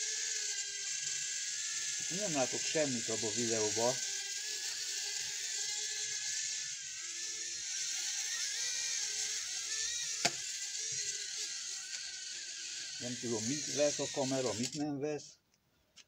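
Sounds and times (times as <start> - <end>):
toy propellers whirring: 0.0 - 15.3
sharp click: 10.2 - 10.4.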